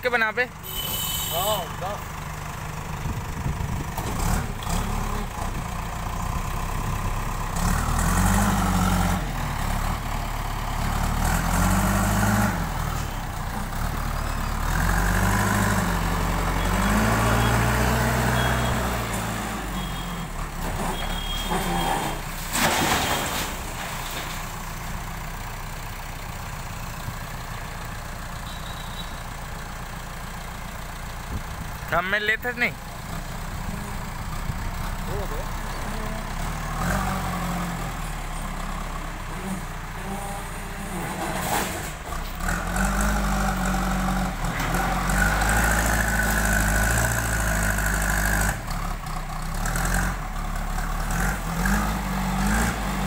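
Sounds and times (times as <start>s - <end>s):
diesel engine revving: 1.2s - 53.0s
loud sharp clatter: 22.4s - 24.5s.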